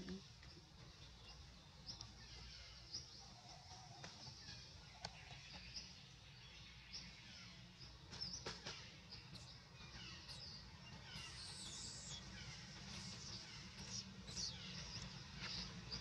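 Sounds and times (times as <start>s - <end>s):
faint birdsong chirps: 0.0s - 16.0s.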